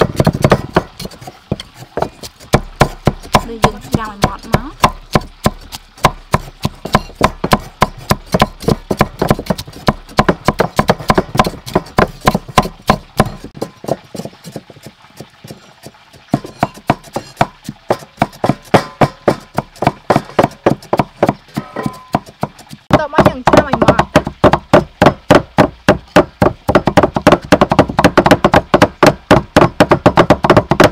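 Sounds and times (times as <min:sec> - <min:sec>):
cleavers chopping on wooden blocks: 0:00.0 - 0:15.6, 0:16.3 - 0:30.9.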